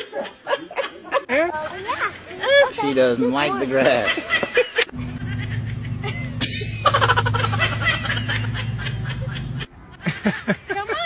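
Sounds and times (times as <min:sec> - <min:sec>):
steady low hum: 0:04.9 - 0:09.7.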